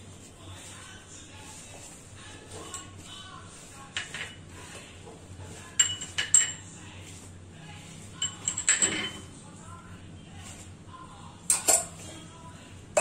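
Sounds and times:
glass bowls clinking: 0:05.8 - 0:06.7, 0:08.2 - 0:09.3, 0:11.5 - 0:12.1.

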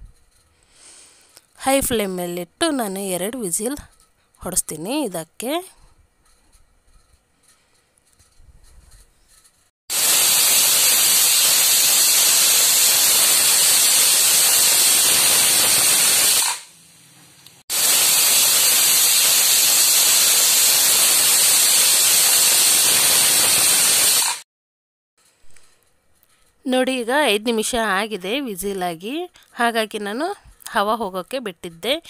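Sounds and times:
pressure cooker whistling: 0:09.9 - 0:16.7, 0:17.7 - 0:24.4.

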